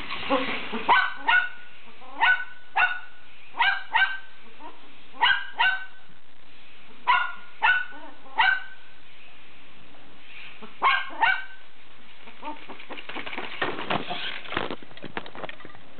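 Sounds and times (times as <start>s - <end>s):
dog barking: 0.9s - 6.0s, 7.0s - 8.8s, 10.8s - 11.6s.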